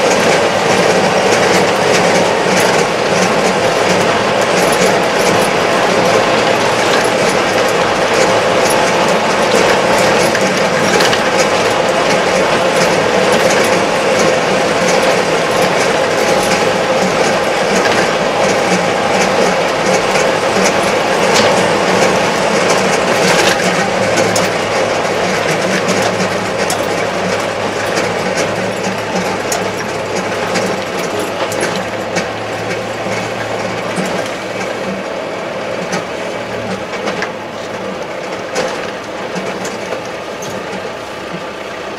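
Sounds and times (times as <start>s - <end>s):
rattling clicks in cab: 0.0s - 35.1s, 35.8s - 41.6s
tractor diesel engine droning: 0.0s - 41.9s.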